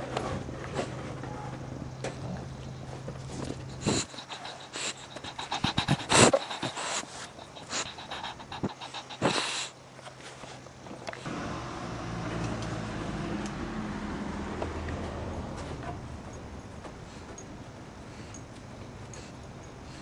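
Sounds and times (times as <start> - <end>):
dog breathing noisily: 3.2 - 10.6, 17.0 - 20.0.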